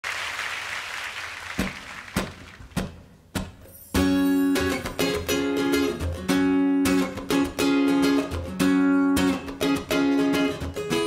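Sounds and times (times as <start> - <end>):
audience applause: 0.0 - 2.7
acoustic guitar strumming: 2.2 - 11.0.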